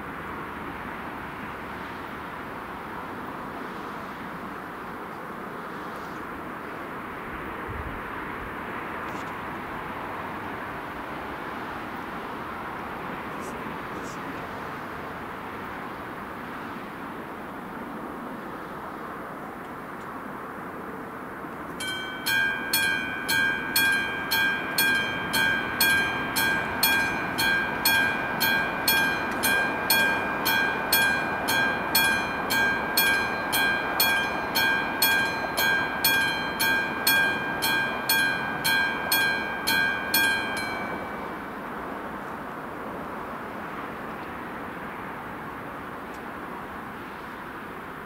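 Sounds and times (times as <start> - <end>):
steady background noise: 0.0 - 48.0
level crossing bell ringing: 21.8 - 41.4.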